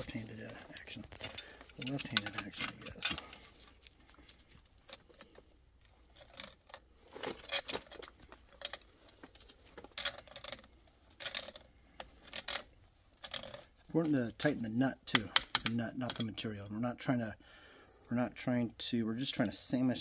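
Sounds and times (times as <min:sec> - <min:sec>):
metal tools clinking: 0:00.0 - 0:05.4, 0:06.0 - 0:16.4.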